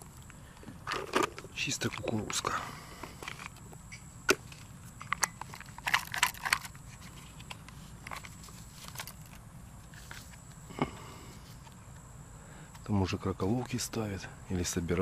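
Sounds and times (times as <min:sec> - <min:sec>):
fishing tackle clicking and rattling: 0:05.0 - 0:06.8.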